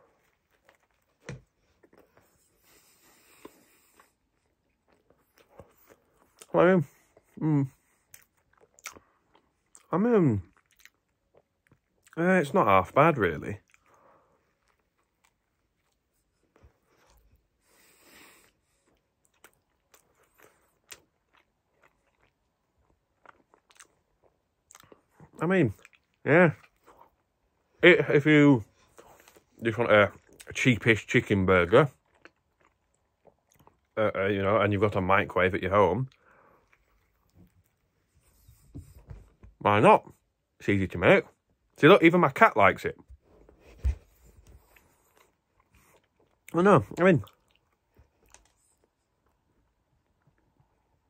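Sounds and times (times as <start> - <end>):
man chewing food: 0.0 - 12.2, 13.6 - 27.8, 28.7 - 30.6, 31.9 - 34.0, 36.0 - 39.6, 43.0 - 51.0
faint chewing mouth clicks: 8.0 - 9.9, 10.5 - 12.2, 18.4 - 27.2, 47.2 - 49.4.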